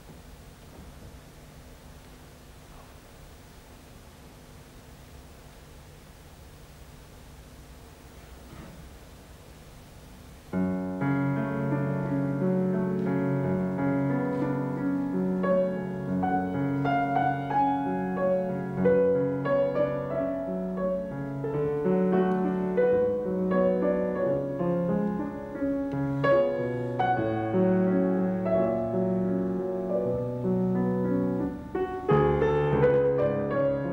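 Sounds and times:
faint hiss: 0:00.0 - 0:33.9
classical piano piece: 0:10.5 - 0:33.9.

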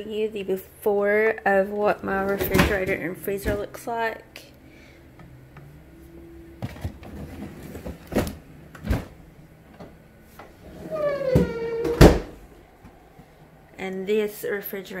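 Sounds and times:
refrigerator drawer and doors knocking: 0:10.9 - 0:12.4.

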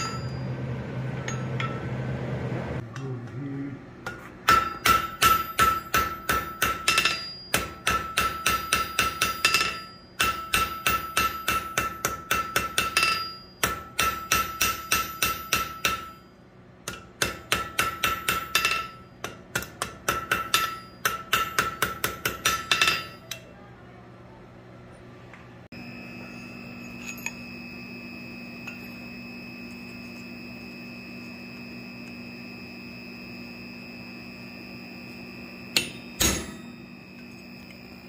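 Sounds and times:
hammer striking steel on anvil: 0:00.0 - 0:00.6, 0:01.2 - 0:01.9, 0:04.0 - 0:23.4, 0:26.1 - 0:27.8, 0:35.6 - 0:37.2
steady metallic ring: 0:00.0 - 0:02.0, 0:04.0 - 0:19.4, 0:20.0 - 0:23.3, 0:25.7 - 0:38.0.

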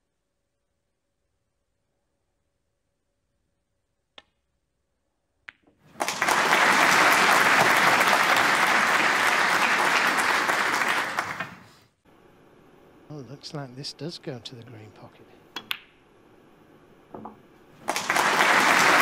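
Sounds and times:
audience applause: 0:05.9 - 0:11.7, 0:17.8 - 0:19.0
snooker balls clicking together: 0:15.5 - 0:16.0.

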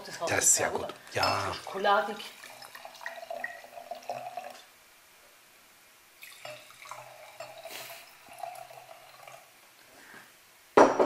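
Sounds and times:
wine pouring into a glass: 0:01.2 - 0:04.7, 0:06.2 - 0:09.6.

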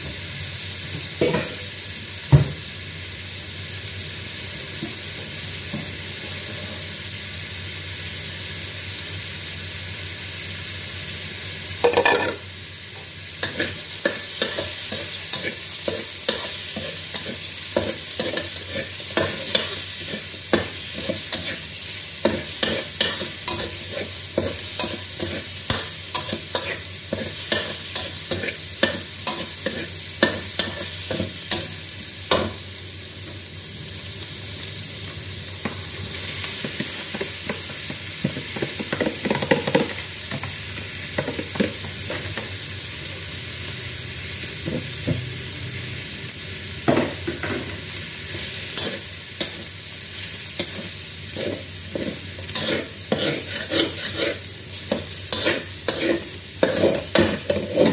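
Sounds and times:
food sizzling in wok: 0:00.0 - 0:57.9
metal spatula scraping wok: 0:13.5 - 0:31.7, 0:50.6 - 0:57.9.

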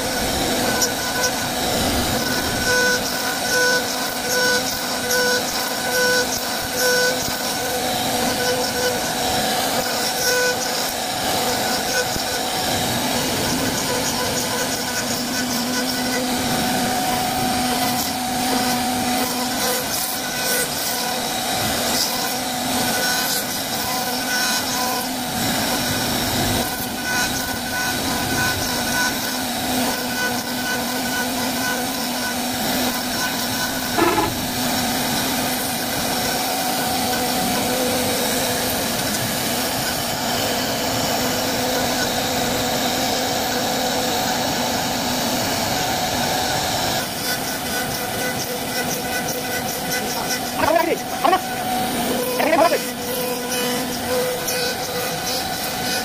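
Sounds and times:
cutter rasping wood: 0:00.0 - 0:56.0
spindle tone: 0:33.9 - 0:34.6.

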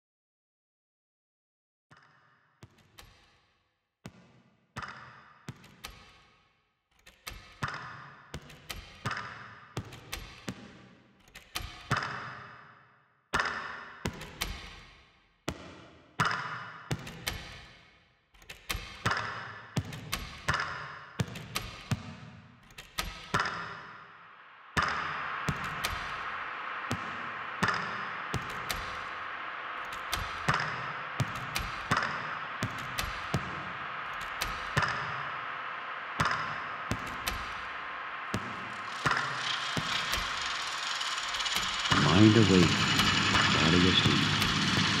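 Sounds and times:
electronic music with clicks: 0:22.7 - 0:45.0
noisy wash: 0:24.3 - 0:45.0.

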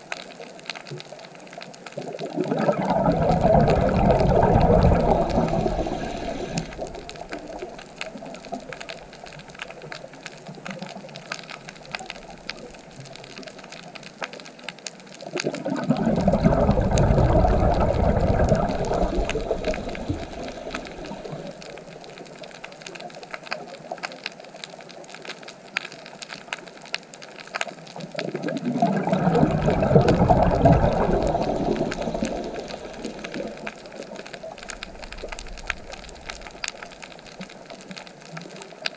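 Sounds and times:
crackle of small clicks: 0:00.0 - 0:38.9
diver's bubbles rushing: 0:02.0 - 0:09.9, 0:15.3 - 0:22.1, 0:28.0 - 0:37.8.

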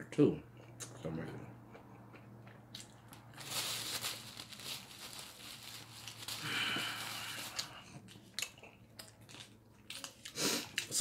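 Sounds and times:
paper rustling and crinkling: 0:03.4 - 0:07.8.

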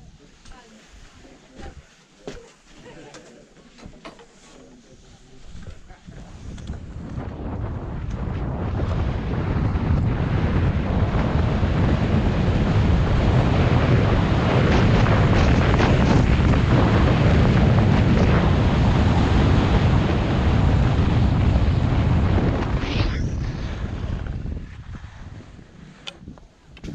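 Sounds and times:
wind buffeting microphone: 0:05.5 - 0:26.9.

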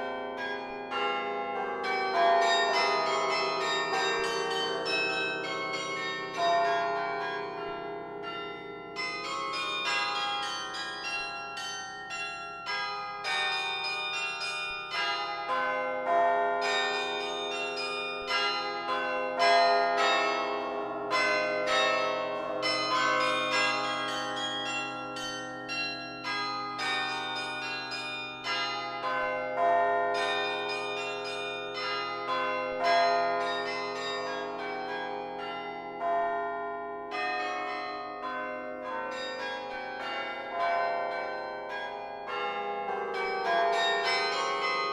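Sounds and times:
low bells ringing on: 0:00.0 - 0:44.9
carillon bells playing: 0:21.1 - 0:36.2.

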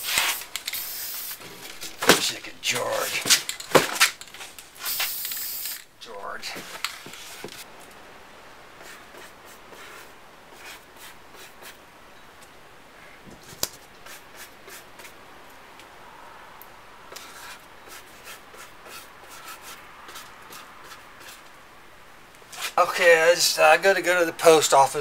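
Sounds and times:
paintbrush scratchy strokes: 0:08.8 - 0:11.8, 0:14.0 - 0:15.2, 0:17.1 - 0:21.5.

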